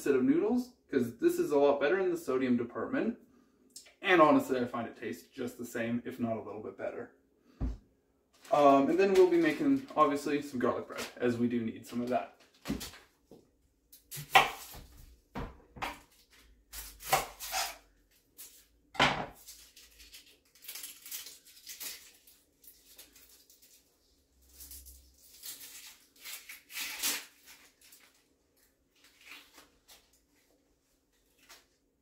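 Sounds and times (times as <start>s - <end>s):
dry onion skin rustling: 19.3s - 31.9s.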